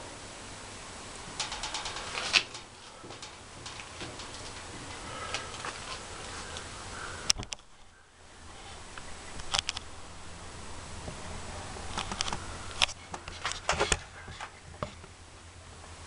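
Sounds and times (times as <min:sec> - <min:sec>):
welding arc crackles and clicks: 0:01.3 - 0:07.8.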